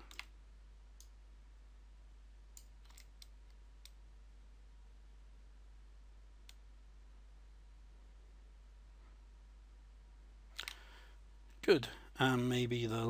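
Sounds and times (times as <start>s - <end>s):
computer mouse clicks: 0.0s - 0.3s, 2.6s - 4.0s, 10.5s - 10.9s.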